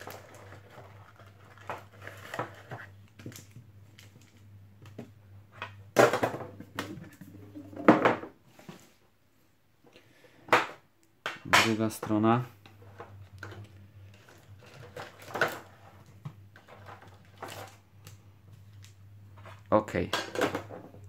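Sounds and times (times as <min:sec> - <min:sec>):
foil card packets rustling: 0:00.0 - 0:04.5
packets and tin clattering on table: 0:00.0 - 0:04.5, 0:12.9 - 0:17.9.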